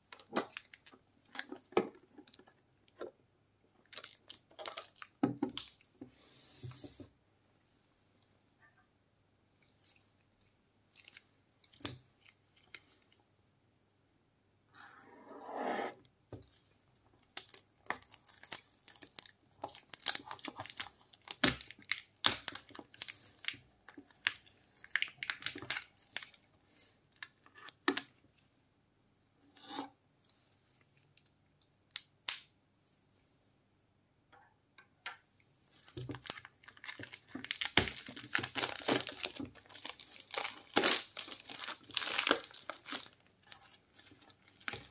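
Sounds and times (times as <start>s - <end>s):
brief scrape: 14.8s - 16.0s
plastic wrap crinkling: 16.5s - 26.4s, 35.7s - 44.9s
plastic shrink wrap tearing: 35.9s - 44.9s.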